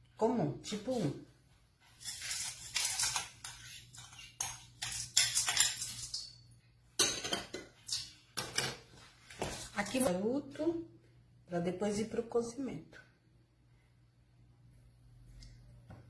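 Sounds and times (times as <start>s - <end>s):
spatula scraping bowls: 1.9s - 6.4s.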